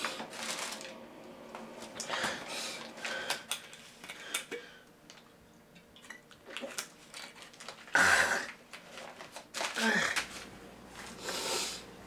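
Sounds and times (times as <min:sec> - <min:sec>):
paper bag crinkling: 0:00.0 - 0:01.0, 0:06.4 - 0:11.2.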